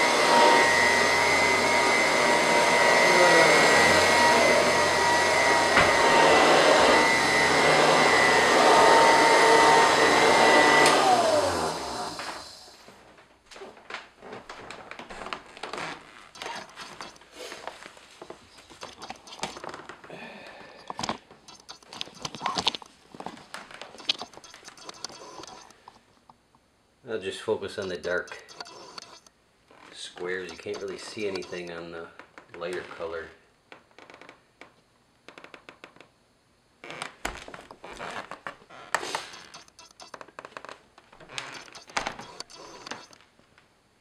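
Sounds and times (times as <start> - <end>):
vacuum motor winding down: 0.0 - 12.7, 16.3 - 17.2, 24.0 - 25.7, 30.5 - 31.8, 41.3 - 43.2
vacuum cleaner whining: 0.0 - 13.1, 14.2 - 25.8, 27.8 - 29.3, 30.0 - 31.9, 36.8 - 43.2.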